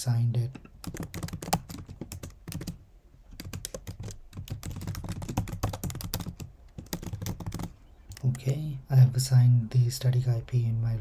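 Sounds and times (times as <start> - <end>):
typing on computer keyboard: 0.8 - 8.3.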